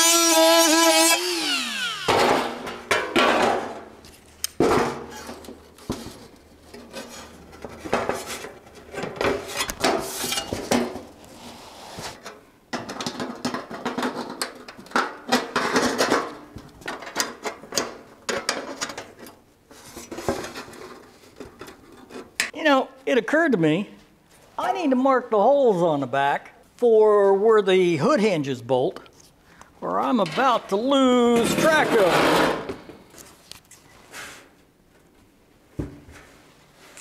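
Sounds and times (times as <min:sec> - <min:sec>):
cutting tool whine: 0:00.0 - 0:02.6.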